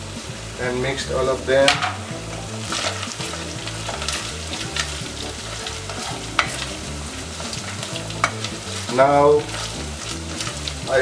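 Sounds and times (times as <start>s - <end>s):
onions sizzling in oil: 0.0s - 11.0s
spatula knocking on pot: 1.6s - 2.2s, 6.0s - 6.7s, 7.4s - 8.5s
spatula stirring: 1.6s - 11.0s.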